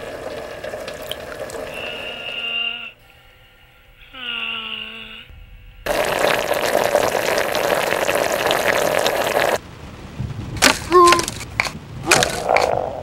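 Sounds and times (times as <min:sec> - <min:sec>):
pot boiling with crackling bubbling: 0:00.0 - 0:02.7, 0:05.9 - 0:09.7, 0:10.6 - 0:13.0.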